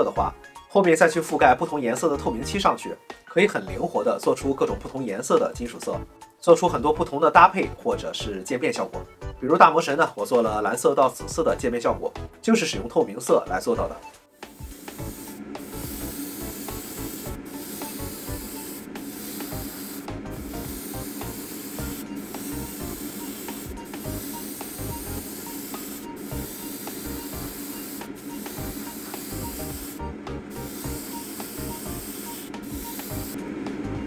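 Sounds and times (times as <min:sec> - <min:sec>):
airbrush spraying hiss: 0:14.4 - 0:33.4
steady low hum: 0:14.5 - 0:34.0.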